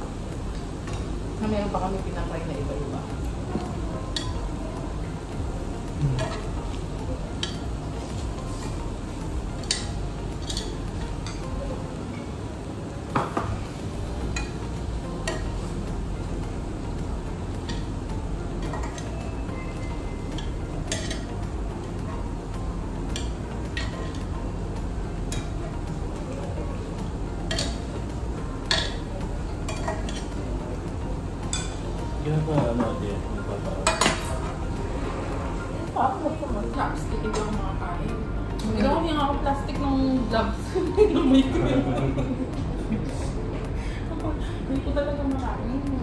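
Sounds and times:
low background noise: 0:00.0 - 0:46.0
metal tongs clinking on grill pan: 0:09.6 - 0:11.4, 0:20.4 - 0:21.3, 0:27.5 - 0:27.8, 0:28.7 - 0:29.0.

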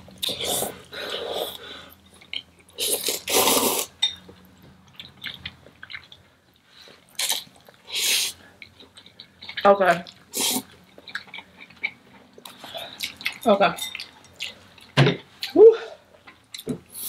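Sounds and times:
noodles being slurped: 0:02.8 - 0:04.0
wet chewing clicks: 0:04.8 - 0:07.8.

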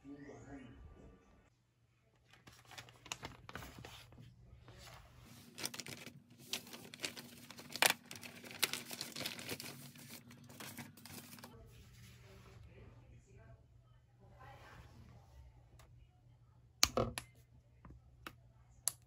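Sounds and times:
plastic packaging crinkling: 0:02.3 - 0:04.2, 0:05.2 - 0:11.6.

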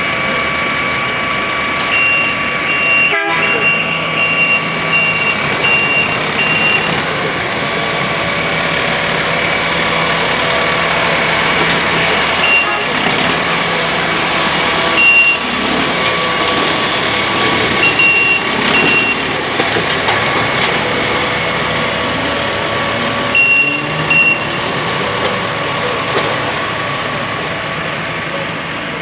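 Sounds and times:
rail machine engine running: 0:00.0 - 0:29.0
high-pitched electronic warning beeps: 0:01.9 - 0:07.0, 0:12.4 - 0:12.9, 0:15.0 - 0:15.5, 0:17.8 - 0:19.2, 0:23.4 - 0:24.6.

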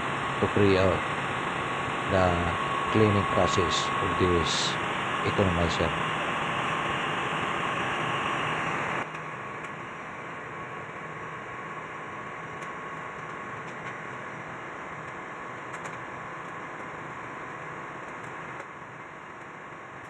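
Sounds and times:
hissing mechanical noise: 0:00.0 - 0:10.0
machinery drone with low hum: 0:00.0 - 0:20.0.

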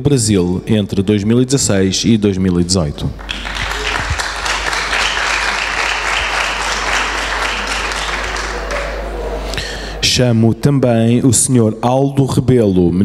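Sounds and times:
audience applauding: 0:03.2 - 0:09.5.

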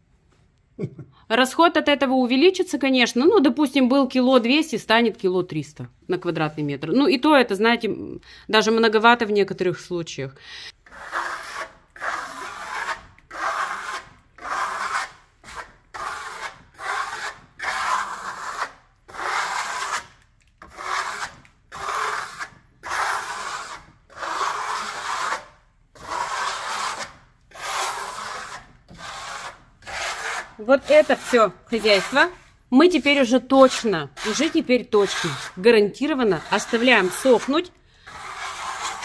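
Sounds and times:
trowel scraping plaster: 0:10.8 - 0:39.0.

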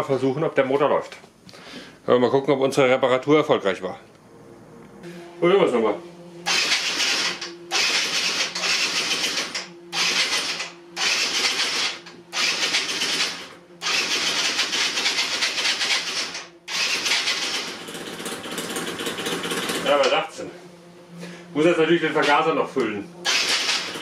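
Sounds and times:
electric starter cranking engine: 0:06.4 - 0:20.2, 0:23.2 - 0:24.0.

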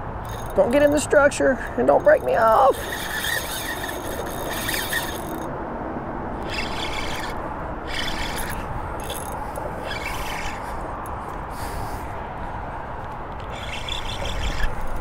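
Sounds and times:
fishing reel drag buzzing: 0:00.2 - 0:01.0, 0:01.7 - 0:05.5, 0:06.4 - 0:12.0, 0:13.4 - 0:15.0.

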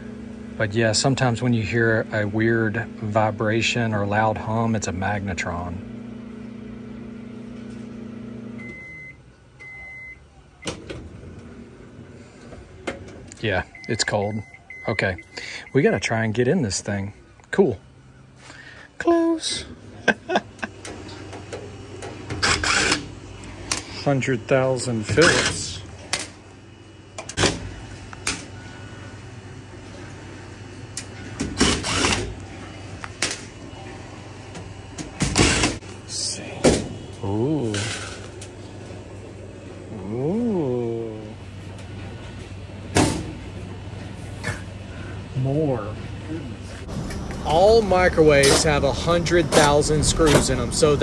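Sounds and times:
microwave humming: 0:00.0 - 0:51.0
microwave beeps: 0:08.4 - 0:11.0, 0:13.6 - 0:16.0.

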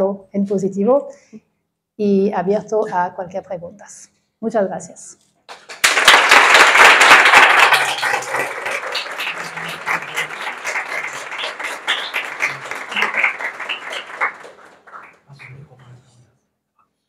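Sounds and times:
audience applauding: 0:05.5 - 0:15.9.

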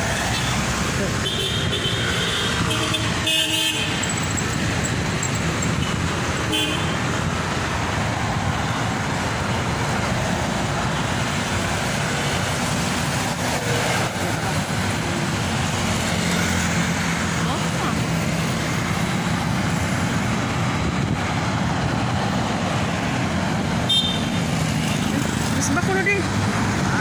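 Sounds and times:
city street traffic: 0:00.0 - 0:27.0
vehicle horn toots: 0:23.9 - 0:24.4.

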